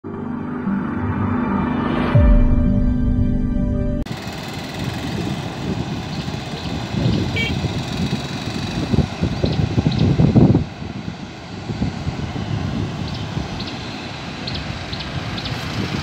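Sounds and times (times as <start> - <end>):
intro music: 0.0 - 4.1.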